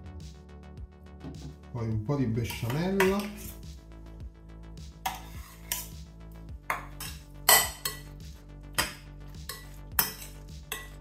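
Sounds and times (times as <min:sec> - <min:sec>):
metal spoon clinking bowls: 0:02.5 - 0:03.5, 0:05.1 - 0:06.0, 0:06.7 - 0:08.1, 0:08.8 - 0:11.0.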